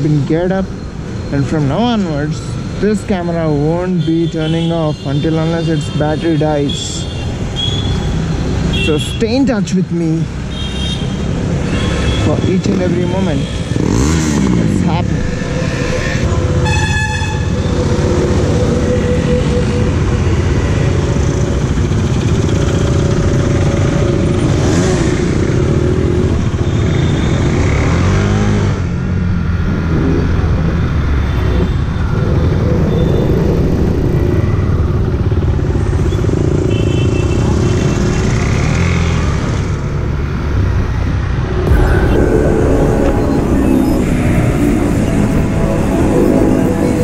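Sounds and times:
city traffic: 0.0 - 47.0
motorcycle engine revving: 13.6 - 16.6.

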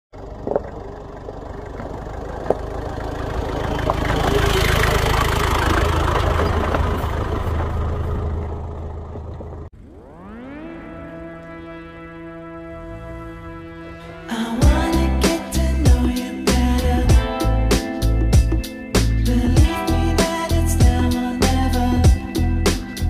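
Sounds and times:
diesel engine rumbling: 0.1 - 9.9, 11.2 - 23.0
music with rising sweep: 9.8 - 23.0.

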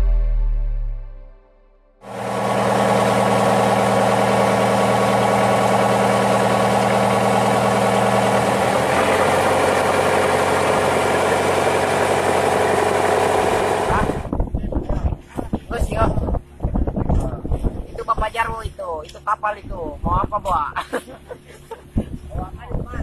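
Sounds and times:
boat engine running: 2.0 - 17.6.

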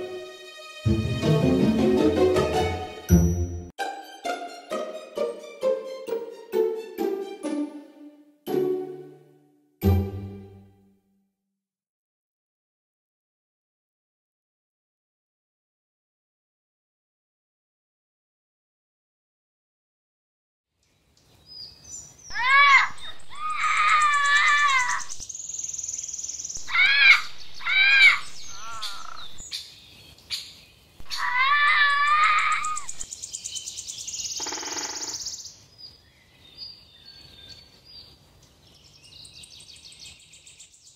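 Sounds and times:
parrot calling: 22.3 - 25.2, 26.6 - 29.4, 31.0 - 33.0.

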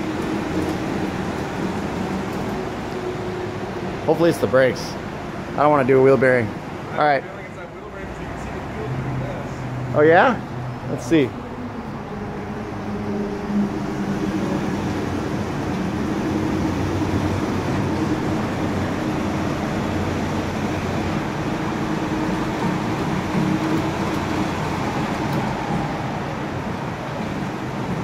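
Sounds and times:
spinning tire hum and rumble: 0.0 - 28.0.

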